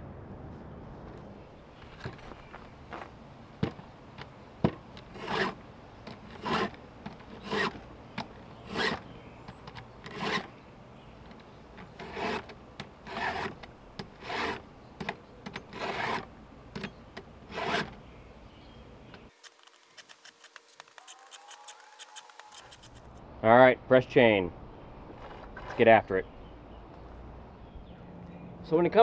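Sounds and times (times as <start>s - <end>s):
file rasping on chainsaw chain: 5.1s - 5.6s, 6.3s - 6.8s, 7.4s - 7.8s, 8.6s - 9.0s, 10.1s - 10.5s, 11.9s - 13.6s, 14.2s - 14.6s, 15.7s - 16.3s, 17.5s - 17.9s
sharp clicks: 19.1s - 23.2s.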